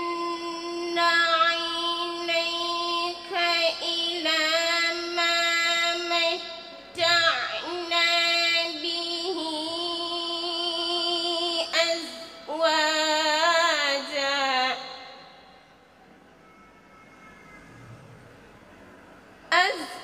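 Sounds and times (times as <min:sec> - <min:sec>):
girl chanting melodic recitation: 0:00.0 - 0:15.4, 0:19.5 - 0:20.0.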